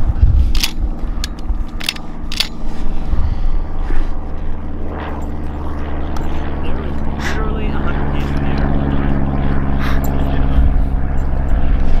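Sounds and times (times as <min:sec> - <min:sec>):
propeller plane droning overhead: 0:00.0 - 0:12.0.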